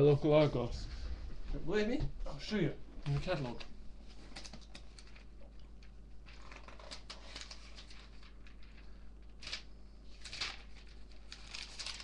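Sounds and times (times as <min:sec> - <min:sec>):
paper pages rustling: 0:04.1 - 0:12.0.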